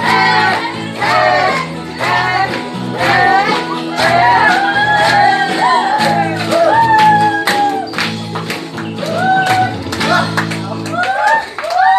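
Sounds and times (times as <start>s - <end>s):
dance music with singing: 0.0s - 7.8s.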